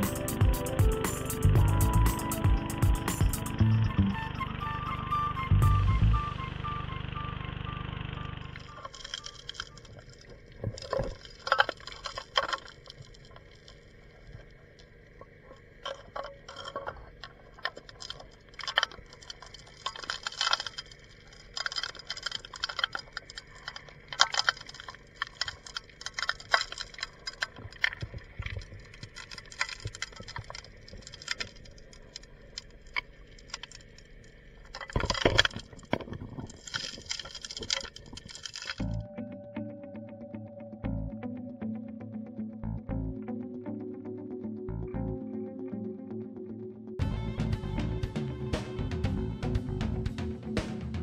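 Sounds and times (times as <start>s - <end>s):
faint steady hum: 0.0s - 51.0s
stones and gravel clacking underwater: 8.5s - 39.0s.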